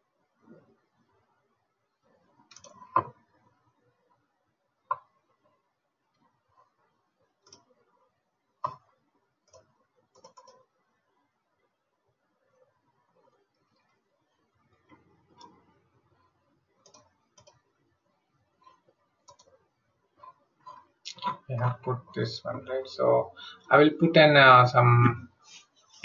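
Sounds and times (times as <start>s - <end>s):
computer mouse clicks: 2.1s - 3.4s, 7.4s - 7.9s, 8.6s - 10.7s, 14.7s - 16.2s, 16.8s - 17.7s, 18.6s - 19.6s.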